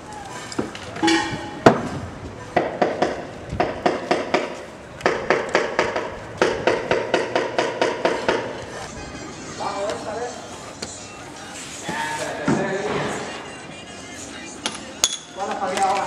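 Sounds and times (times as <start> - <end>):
ringing hammer strikes: 1.0 - 1.8.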